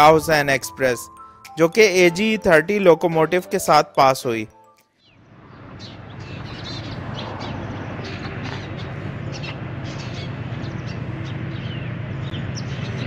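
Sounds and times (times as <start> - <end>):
birds chirping: 5.0 - 13.0.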